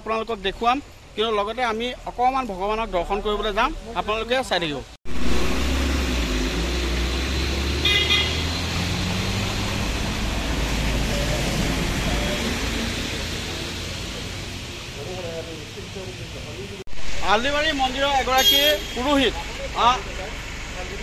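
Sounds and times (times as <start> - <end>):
vehicle engine rumble passing: 5.1 - 18.4
vehicle horn toot: 7.8 - 8.6, 18.3 - 19.3.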